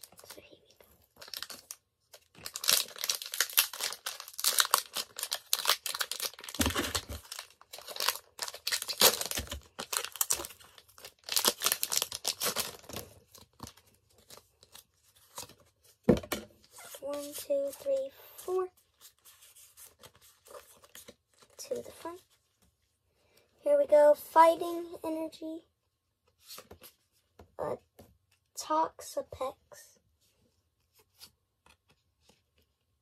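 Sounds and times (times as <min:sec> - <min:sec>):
foil wrapper tearing and crinkling: 0:01.2 - 0:01.8, 0:02.4 - 0:13.8.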